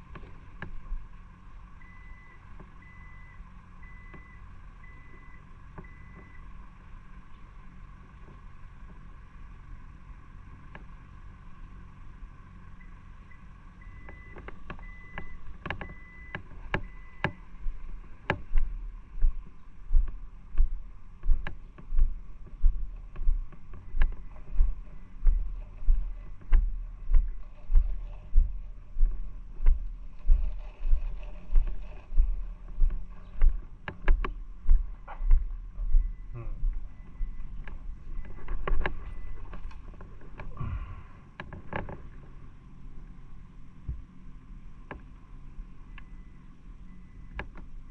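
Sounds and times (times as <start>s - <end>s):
low hum: 0.0s - 47.9s
footsteps walking: 16.4s - 40.2s
clicks: 18.2s - 35.5s.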